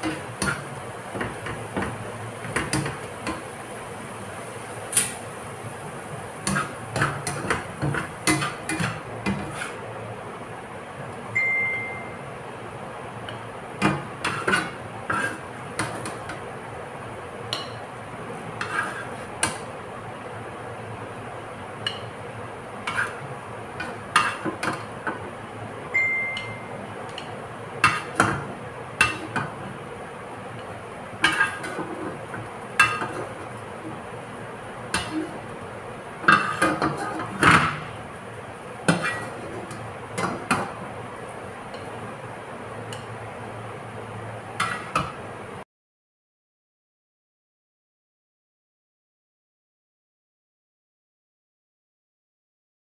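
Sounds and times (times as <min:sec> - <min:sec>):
spatula scraping frying pan: 0:00.0 - 0:03.8, 0:05.0 - 0:10.0, 0:13.8 - 0:16.5, 0:17.5 - 0:19.7, 0:22.7 - 0:25.3, 0:27.1 - 0:29.8, 0:30.6 - 0:38.0, 0:38.8 - 0:40.9, 0:44.6 - 0:45.2
short high beep: 0:11.4 - 0:12.2, 0:25.9 - 0:26.8.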